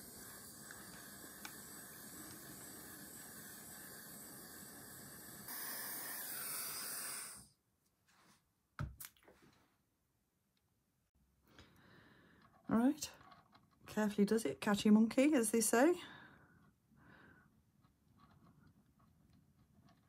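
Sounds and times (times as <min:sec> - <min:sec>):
gas torch flame hissing: 0:00.0 - 0:07.6.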